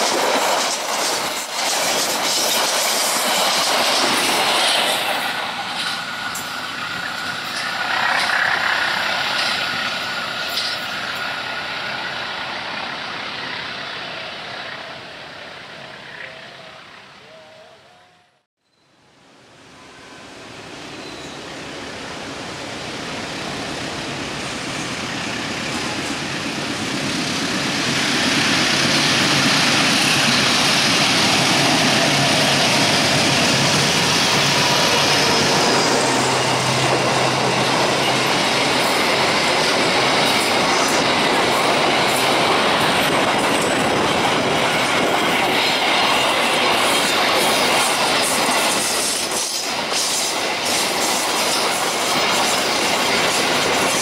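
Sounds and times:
train wheels clattering on rails: 0.0 - 12.1, 23.6 - 54.0
locomotive engine passing: 0.0 - 17.5, 20.4 - 54.0.

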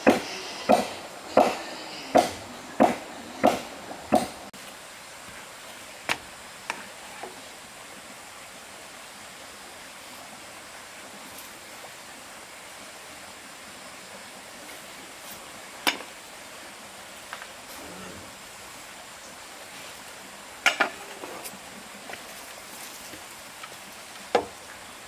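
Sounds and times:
sharp knocks: 0.0 - 4.4
faint steady hiss: 0.0 - 25.0.

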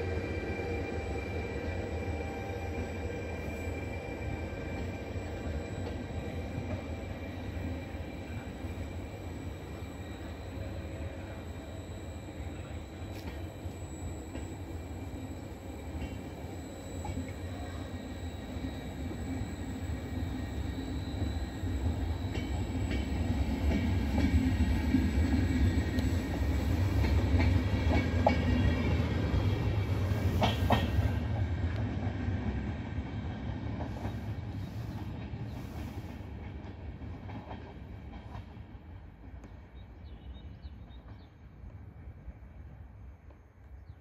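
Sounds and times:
train wheels rumbling on rails: 0.0 - 44.0
electric whine: 0.2 - 30.4.

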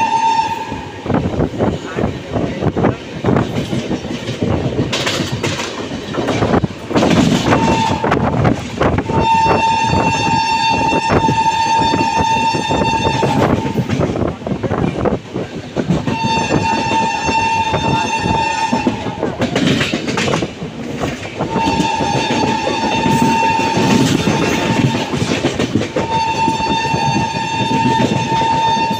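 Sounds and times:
locomotive horn blast: 0.0 - 1.2, 7.2 - 14.0, 16.1 - 19.4, 21.4 - 25.4, 26.0 - 28.9
train wheels clattering over joints: 1.3 - 28.9.

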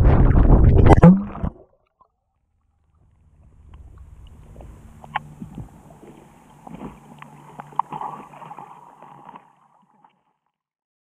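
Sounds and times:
gurgling water: 0.0 - 1.8, 2.8 - 10.4
underwater clicks and knocks: 3.7 - 9.5.

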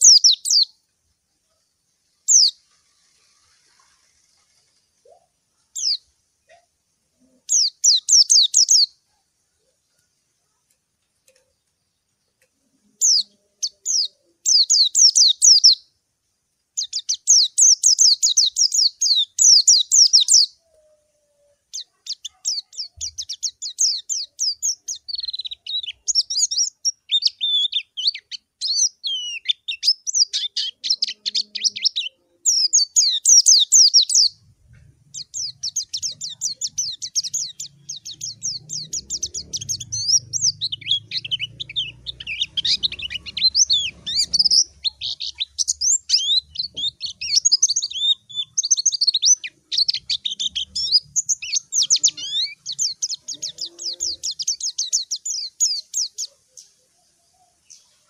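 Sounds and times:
bird chirping and trilling: 0.0 - 0.7, 2.3 - 3.9, 5.0 - 6.6, 7.2 - 9.0, 12.9 - 15.9, 16.8 - 58.0.

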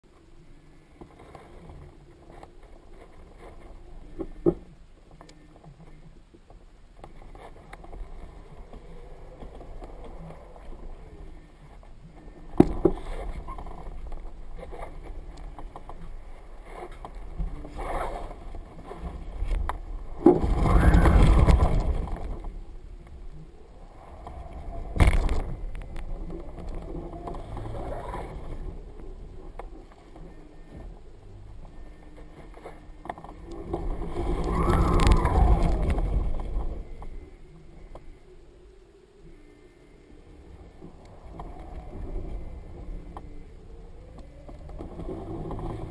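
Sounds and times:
light ticks: 0.2 - 19.8
wind buffeting camera: 6.9 - 38.5, 40.2 - 45.9
kite fabric flapping and rustling: 7.0 - 37.9.

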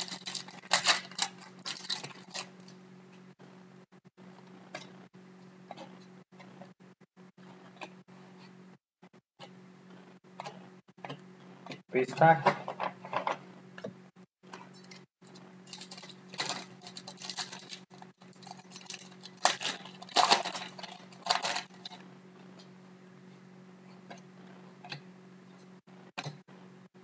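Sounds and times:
foil card pack crinkling: 0.0 - 2.8, 15.6 - 22.0.

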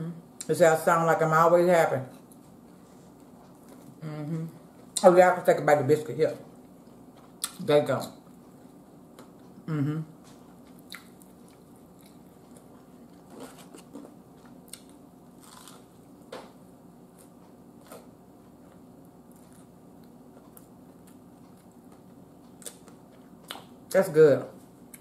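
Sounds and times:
faint steady hum: 0.0 - 25.0
person chewing: 6.5 - 16.1, 17.1 - 23.9.

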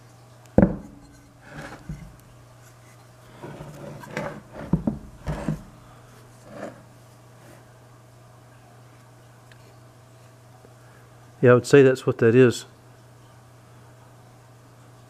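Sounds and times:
heavy motor knocking on wooden bench: 0.6 - 0.9, 4.6 - 5.6
scraping on wooden workbench: 0.6 - 2.2, 3.3 - 5.8, 6.4 - 7.7.

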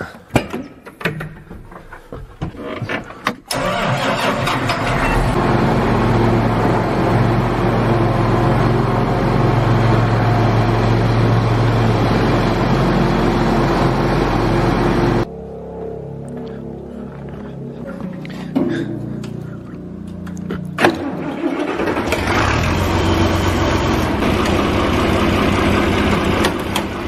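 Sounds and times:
tractor diesel engine starting and idling: 3.5 - 15.3, 20.5 - 27.0.

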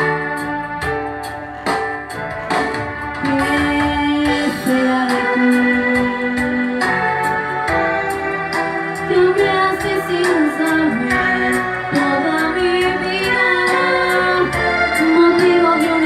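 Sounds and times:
backing track with steady beat: 0.0 - 16.0
girl singing into a microphone: 3.2 - 6.8, 9.1 - 16.0.

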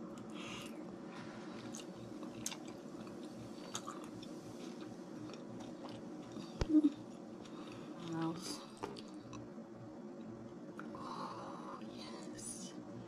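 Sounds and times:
steady low hum: 0.0 - 13.0
person chewing: 1.6 - 9.5.

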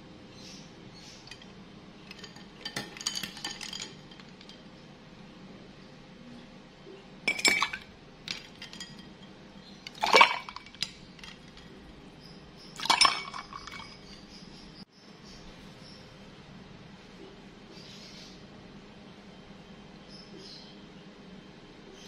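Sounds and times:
metal ladle clinking glass and ice: 1.3 - 4.6, 7.3 - 11.9, 12.7 - 14.4
drink pouring into glass: 9.9 - 10.9, 12.8 - 13.9.

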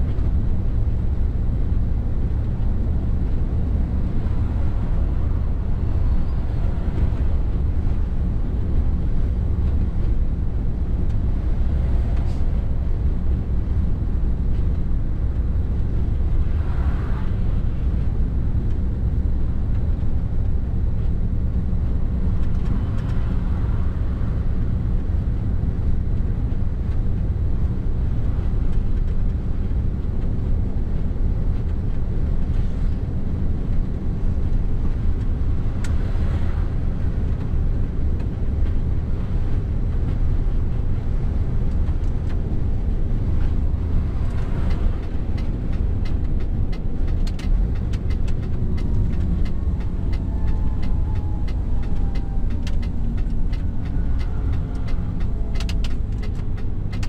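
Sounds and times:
truck engine and tyre rumble: 0.0 - 57.0
light ticks: 22.4 - 23.2, 41.0 - 57.0.

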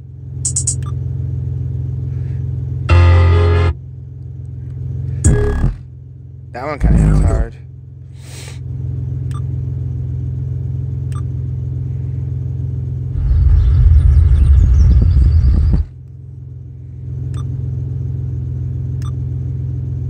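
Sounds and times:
heavy subwoofer bass from stereo: 2.9 - 3.8, 5.2 - 5.9, 6.8 - 7.6, 13.2 - 16.0.

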